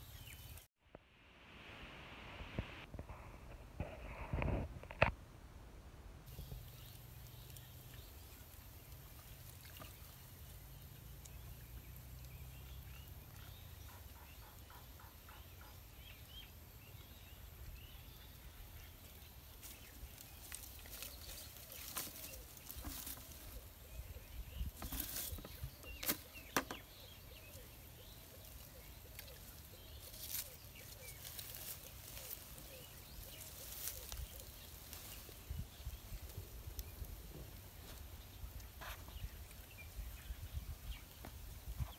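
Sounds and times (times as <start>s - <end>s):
plants rustling: 18.9s - 39.5s.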